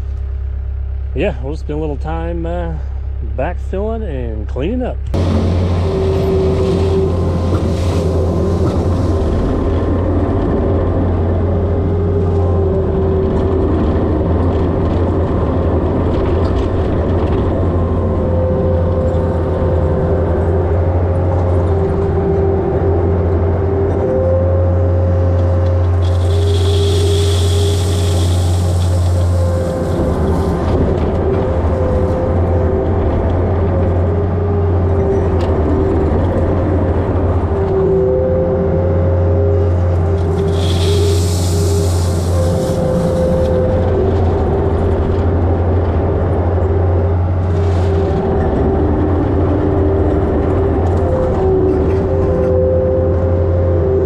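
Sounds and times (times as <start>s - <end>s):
diesel engine under load: 0.0s - 54.0s
hiss: 26.0s - 30.5s, 40.3s - 43.6s.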